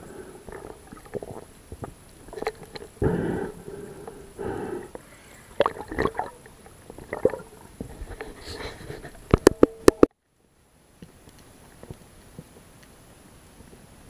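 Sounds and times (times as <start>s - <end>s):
underwater gurgling: 0.0s - 10.1s.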